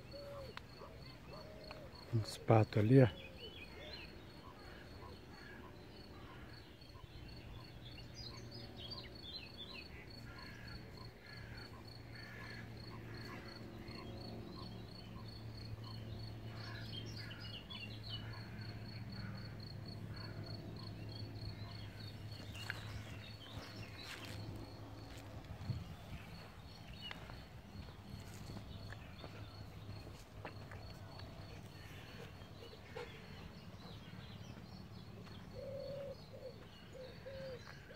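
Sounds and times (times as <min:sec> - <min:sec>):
birds calling: 0:00.0 - 0:37.9
cricket chirping: 0:00.0 - 0:37.9
footsteps on gravel: 0:22.4 - 0:32.4.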